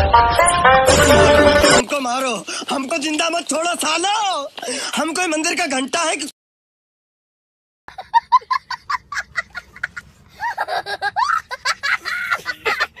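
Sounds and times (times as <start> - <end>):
child laughing: 7.9 - 13.0.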